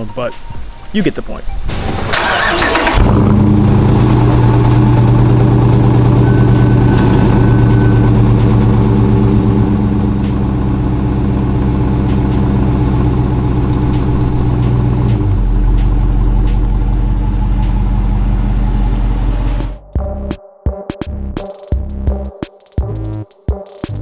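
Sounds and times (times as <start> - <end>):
car engine idling: 1.1 - 19.8.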